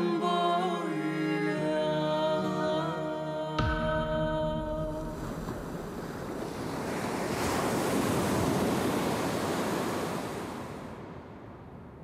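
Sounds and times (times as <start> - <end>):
sea waves surging: 3.6 - 11.3.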